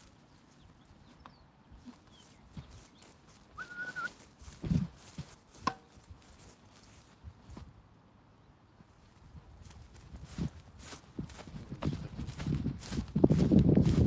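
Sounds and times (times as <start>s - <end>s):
footsteps on grass: 0.0s - 7.8s, 8.8s - 14.0s
short high whistle-like tone: 3.6s - 4.2s.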